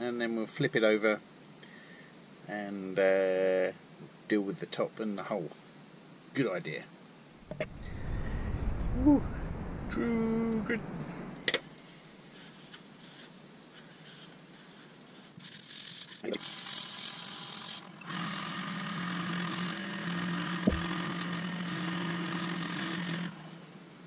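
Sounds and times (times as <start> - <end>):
wood lathe motor hum: 15.5 - 23.4.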